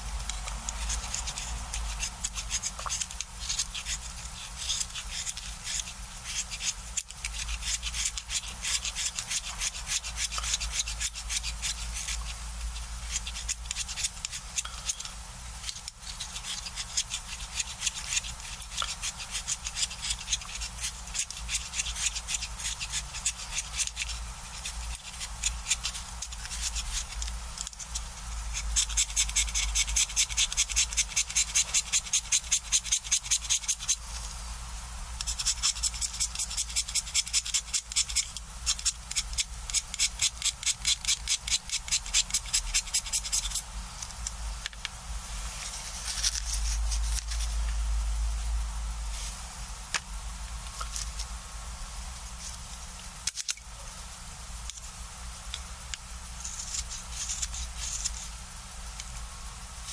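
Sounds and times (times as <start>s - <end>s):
knife scraping pencil wood: 0.3s - 34.0s, 35.2s - 44.2s, 56.4s - 58.3s.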